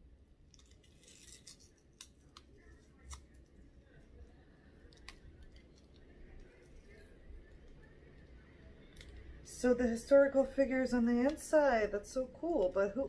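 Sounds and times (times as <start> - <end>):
packet rustling: 0.5 - 3.4.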